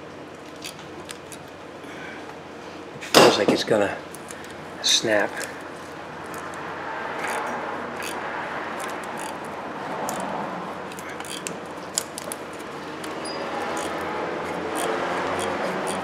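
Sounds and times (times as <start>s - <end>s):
ratchet clicks: 7.2s - 8.2s, 8.8s - 10.3s, 10.9s - 16.0s.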